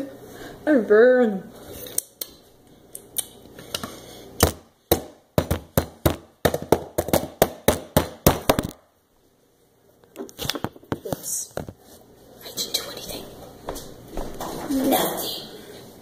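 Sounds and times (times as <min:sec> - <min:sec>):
rapid sharp taps and knocks: 0:04.4 - 0:08.8.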